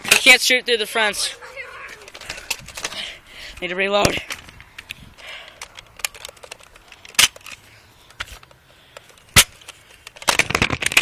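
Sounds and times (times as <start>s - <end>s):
toy blaster plastic clacks: 4.3s - 11.0s.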